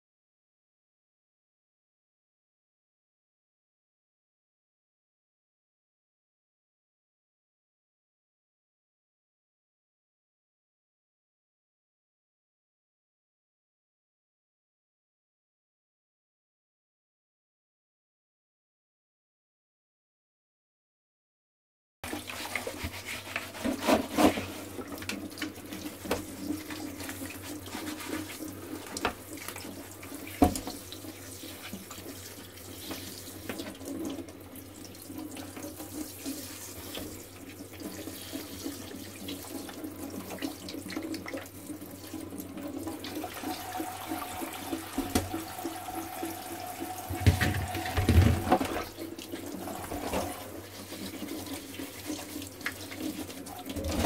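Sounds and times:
water splashing in metal sink: 22.1 - 54.0.

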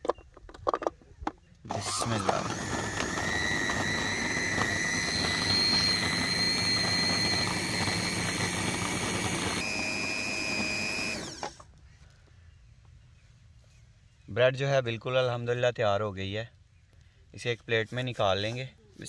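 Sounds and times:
food processor motor whine: 1.7 - 11.6.

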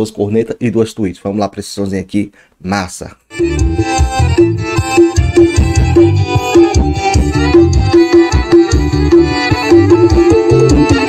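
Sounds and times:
song with heavy pounding bass: 3.4 - 11.0.

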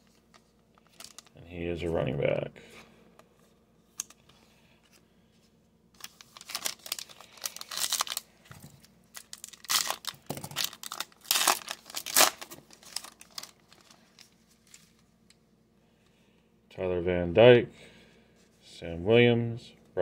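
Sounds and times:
handling of cards: 0.0 - 1.4, 3.9 - 15.4
foil wrapper crinkling and tearing: 0.8 - 1.3, 6.0 - 8.3, 9.1 - 14.8.

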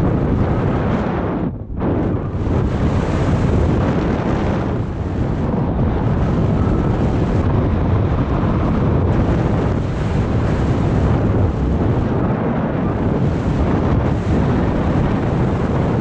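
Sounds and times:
wind rushing over microphone: 0.0 - 16.0.

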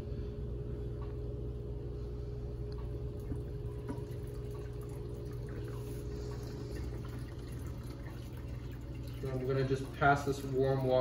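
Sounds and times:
steady low hum: 0.0 - 11.0
water pouring in thin stream: 3.7 - 11.0.

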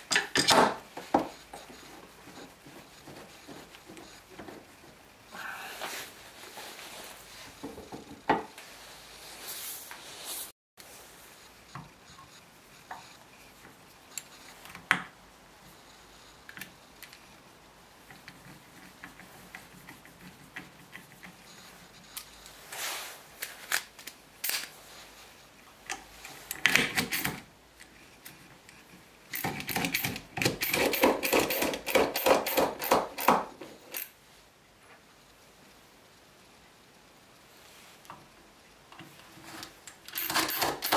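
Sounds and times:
screwdriver ratchet clicking: 40.1 - 40.9.

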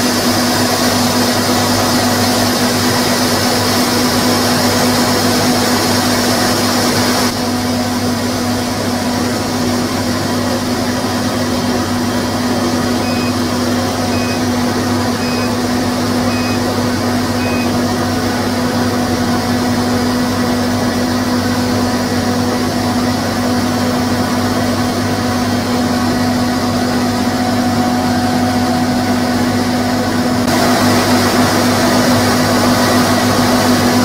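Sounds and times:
laser cutter hum: 0.0 - 33.7
fan rush of air: 0.0 - 34.0
short faint high beeps: 13.0 - 13.4, 14.1 - 14.4, 15.2 - 15.6, 16.3 - 16.6, 17.4 - 17.7.

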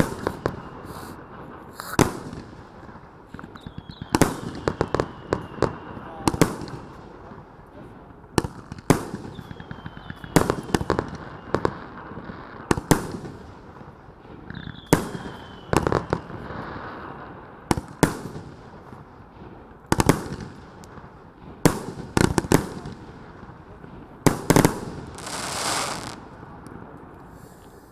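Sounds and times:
firework hissing: 0.0 - 2.3, 25.0 - 26.2
firework falling whistles: 0.0 - 2.5, 3.4 - 6.8, 9.2 - 12.3, 14.5 - 17.2, 24.6 - 26.2
firework bangs: 0.0 - 7.4, 8.4 - 26.6.

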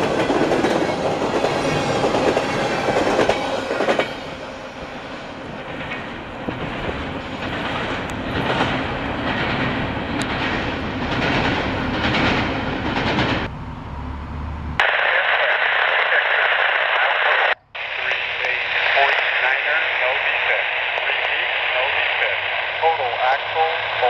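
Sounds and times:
train wheels clacking on track: 0.0 - 4.3, 5.6 - 13.5
voice over a radio: 14.8 - 24.0.

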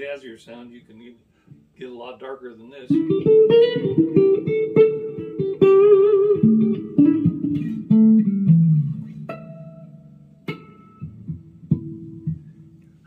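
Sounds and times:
electric guitar lick: 2.9 - 13.0.

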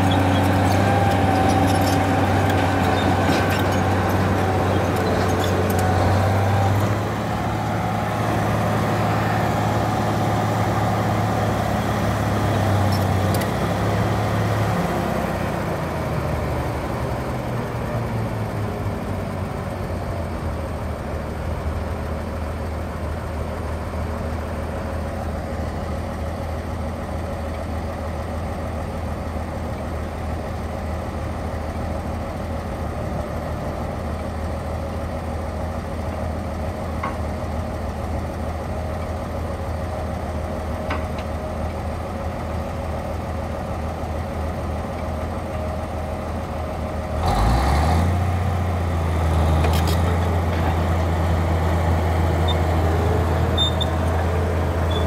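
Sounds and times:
diesel engine revving under load: 0.0 - 18.6, 45.9 - 55.0
heavy diesel engines idling: 0.0 - 55.0.

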